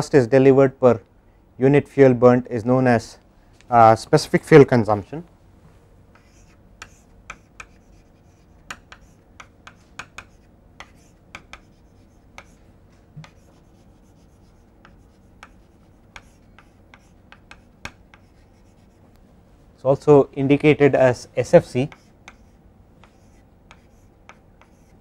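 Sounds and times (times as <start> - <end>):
chalk writing on chalkboard: 6.1 - 19.1, 21.6 - 25.0.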